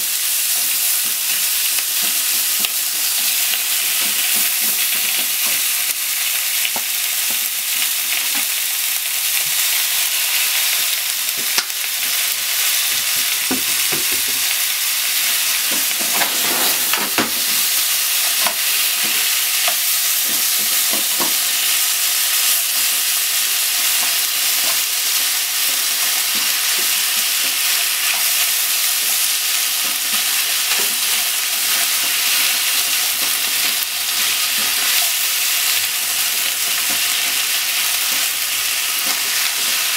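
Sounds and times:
food sizzling in frying pan: 0.0s - 39.9s
chopsticks scraping pan: 15.7s - 18.6s.

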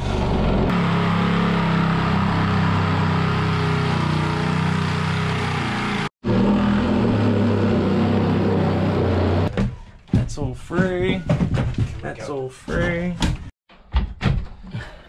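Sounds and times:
jigsaw cutting wood: 5.6s - 9.5s.

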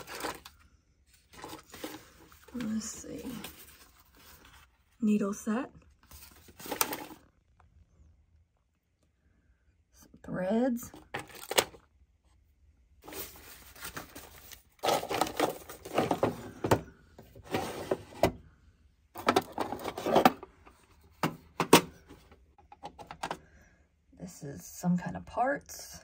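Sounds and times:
small parts rattling in drawers: 0.0s - 0.6s, 1.2s - 4.3s, 6.2s - 7.2s, 13.0s - 18.4s, 19.2s - 23.4s
wooden drawers scraping: 17.4s - 18.4s, 19.2s - 20.4s.

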